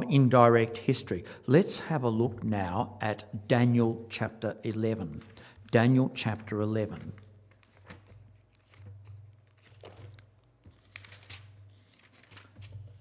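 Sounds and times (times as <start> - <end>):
book pages being turned: 4.1 - 13.0.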